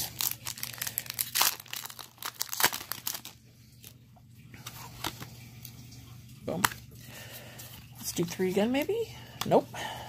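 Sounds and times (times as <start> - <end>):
foil wrapper crinkling and tearing: 0.0 - 4.0.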